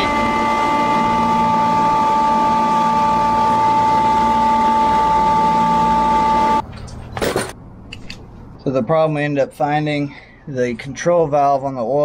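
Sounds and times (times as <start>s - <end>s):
chiller humming with high tone: 0.0s - 6.8s.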